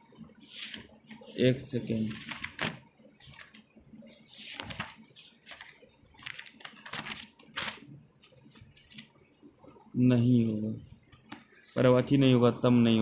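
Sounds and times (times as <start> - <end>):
faint rustling and clicking: 0.1 - 11.7.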